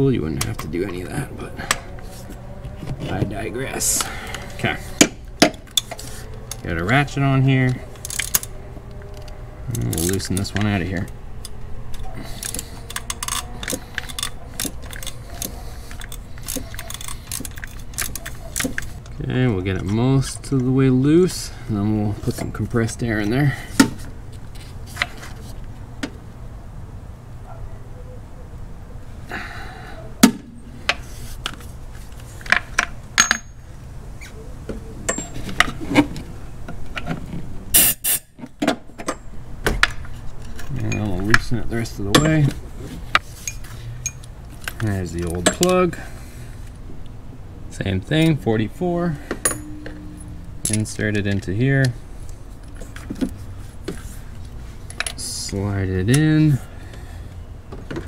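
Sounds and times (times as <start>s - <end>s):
metal hand tools clinking: 12.0s - 19.0s, 33.2s - 33.6s, 43.4s - 45.8s, 49.4s - 50.9s
compressed air blasts: 37.7s - 38.4s.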